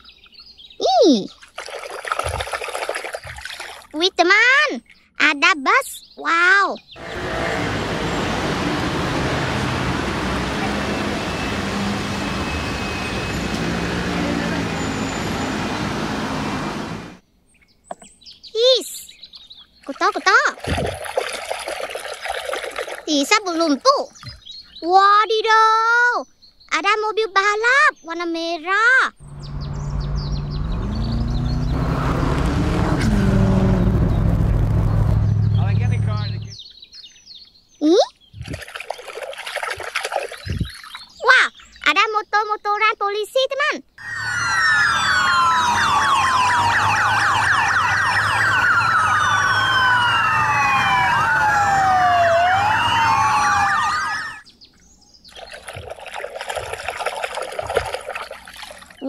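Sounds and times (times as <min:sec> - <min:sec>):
birds chirping: 0:02.2 - 0:20.4, 0:23.1 - 0:59.0
motorcycle sirens wailing: 0:07.0 - 0:17.2, 0:29.2 - 0:36.5, 0:44.0 - 0:54.4
sports car engine: 0:07.0 - 0:17.2, 0:29.2 - 0:36.6, 0:44.1 - 0:53.9.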